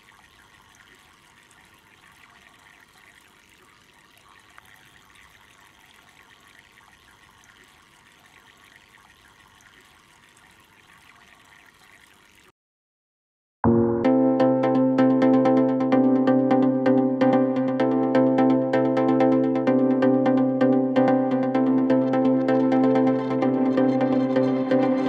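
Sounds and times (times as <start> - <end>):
fountain water trickling: 0.0 - 12.5.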